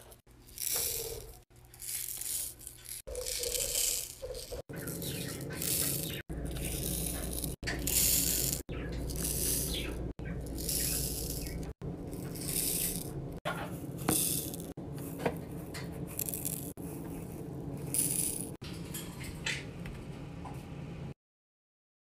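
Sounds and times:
plastic beads rattling in tray: 0:00.4 - 0:13.1, 0:14.0 - 0:14.7, 0:16.1 - 0:18.6.

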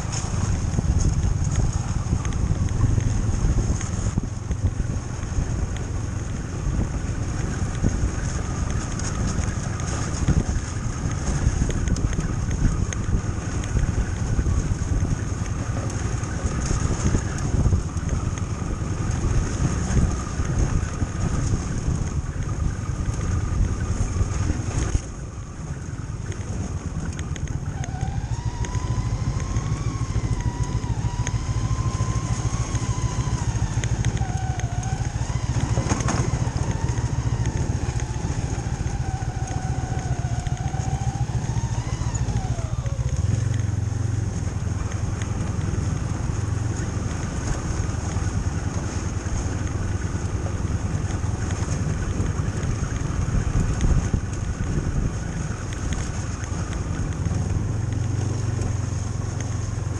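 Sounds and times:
snowmobile engine drone: 0:00.0 - 0:59.9
wavering whine: 0:07.8 - 0:49.5.

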